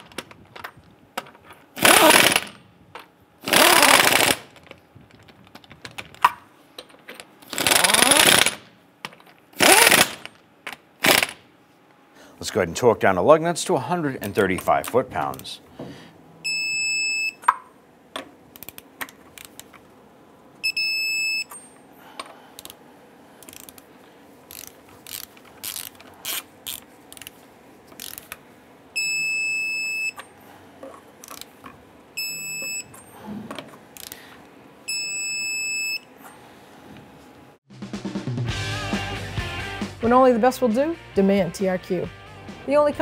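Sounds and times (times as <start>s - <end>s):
torque wrench ratchet clicking: 1.8s - 2.6s, 3.5s - 4.4s, 7.5s - 8.6s, 9.6s - 10.3s, 23.4s - 23.8s, 24.5s - 27.3s, 28.0s - 28.3s.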